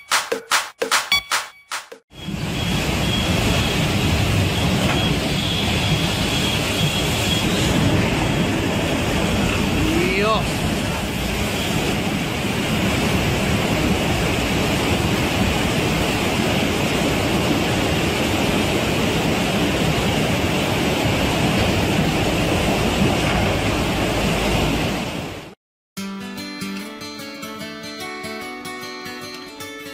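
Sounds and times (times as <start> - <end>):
floodwater rushing: 2.3 - 25.6.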